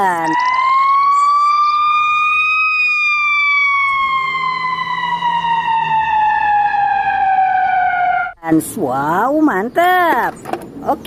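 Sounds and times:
ambulance siren wailing: 0.0s - 8.4s.

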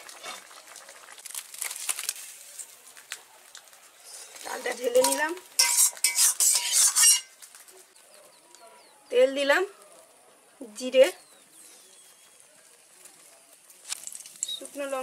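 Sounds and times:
hot oil sizzling: 0.0s - 7.4s
metal spatula scraping a pan: 4.1s - 7.4s.

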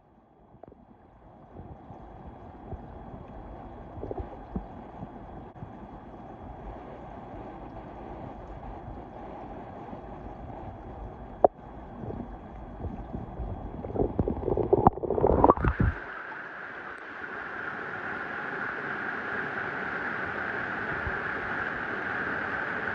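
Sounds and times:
muffled underwater rumble: 0.0s - 22.9s
water sloshing and splashing: 11.9s - 16.1s.

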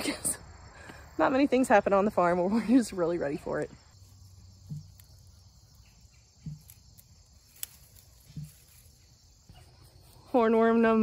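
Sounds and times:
insects singing: 2.9s - 11.0s.

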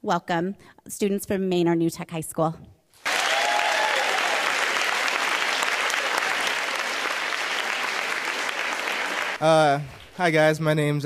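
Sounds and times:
audience applauding: 3.0s - 10.6s.

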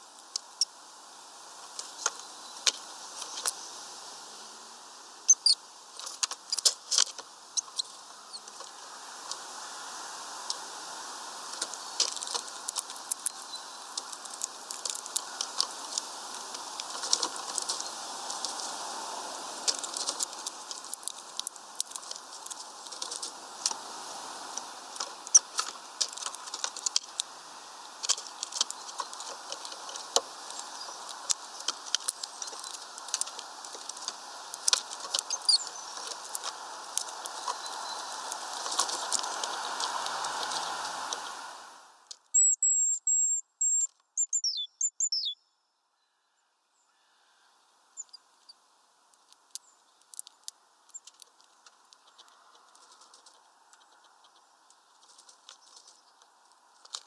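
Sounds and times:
steady hiss: 0.0s - 42.6s
bird pecking at seed: 11.4s - 41.3s, 49.2s - 57.0s.

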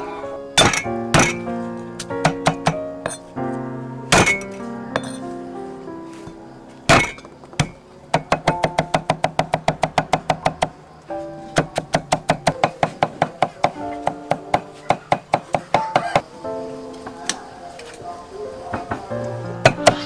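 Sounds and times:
background music: 0.0s - 20.0s
cleaver chopping on wooden block: 0.6s - 1.4s, 2.2s - 3.2s, 6.9s - 10.7s, 11.6s - 16.2s.

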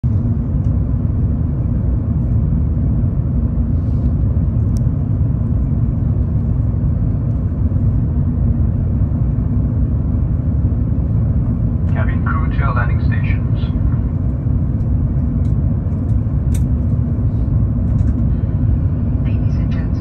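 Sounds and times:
aircraft cabin engine rumble: 0.0s - 20.0s.

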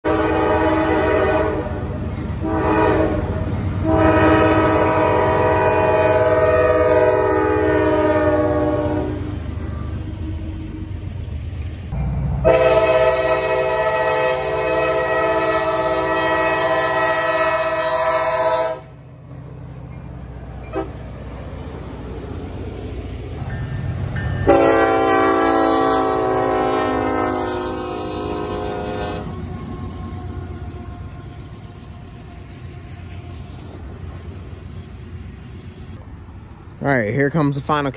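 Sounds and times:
locomotive horn blasts: 0.0s - 10.5s, 12.4s - 19.0s, 20.6s - 21.0s, 24.4s - 31.6s
freight train rumbling: 0.0s - 37.9s.

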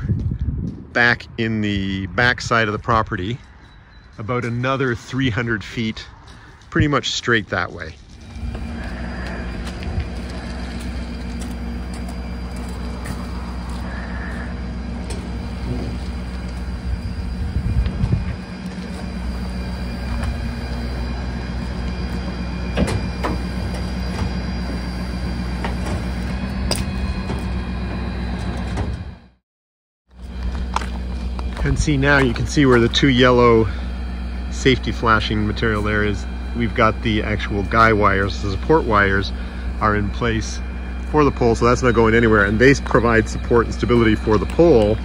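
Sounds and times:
truck engine droning: 0.0s - 29.4s, 30.1s - 45.0s.

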